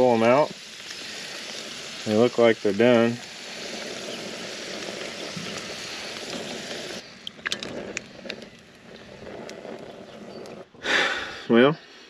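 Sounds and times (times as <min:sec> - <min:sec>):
food sizzling in hot oil: 0:00.0 - 0:07.2.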